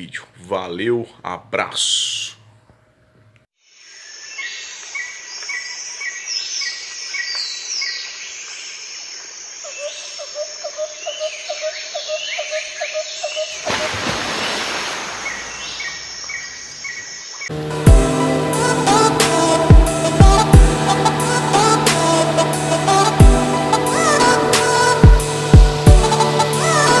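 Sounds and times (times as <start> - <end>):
birds chirping and calling: 15.1 - 17.5.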